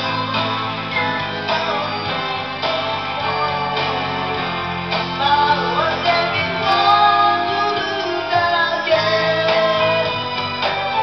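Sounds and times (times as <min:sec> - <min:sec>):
karaoke backing track: 0:00.0 - 0:11.0
boy singing into a microphone: 0:05.2 - 0:10.2.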